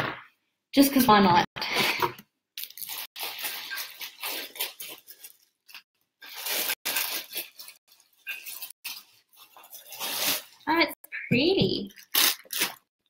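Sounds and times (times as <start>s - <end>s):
plastic packaging crinkling: 2.6s - 10.6s, 11.9s - 12.9s.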